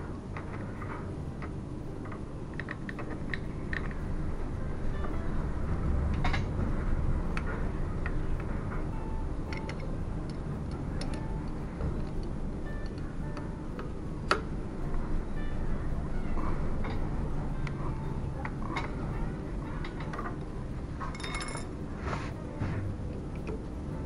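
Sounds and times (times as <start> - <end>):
steady low rumble: 0.0 - 24.0
small metallic clicks and taps: 9.5 - 14.5.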